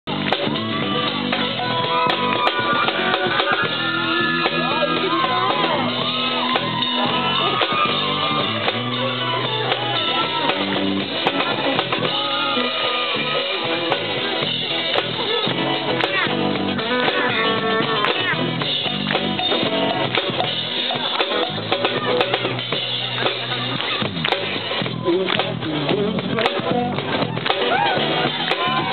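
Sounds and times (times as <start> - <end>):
drum kit: 0.0 - 28.9
electric guitars: 0.1 - 28.9.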